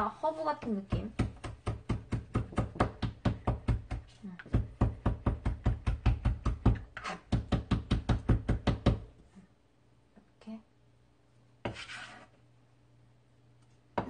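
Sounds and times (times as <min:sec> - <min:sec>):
knife chopping on plastic board: 0:00.6 - 0:09.1, 0:11.6 - 0:12.2
knife scraping greens off board: 0:06.9 - 0:07.3, 0:11.7 - 0:12.3.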